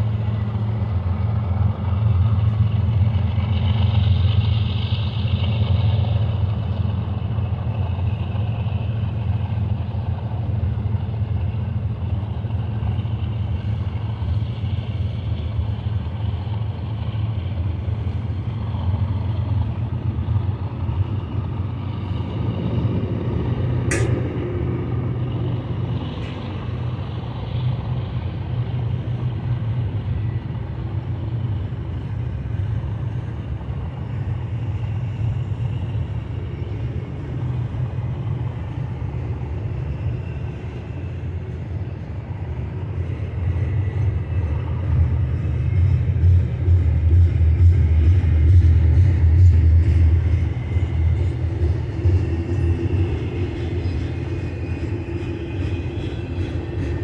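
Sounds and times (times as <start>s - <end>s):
train wheels rumbling on rails: 0.0s - 57.0s
sharp click: 23.9s - 24.3s.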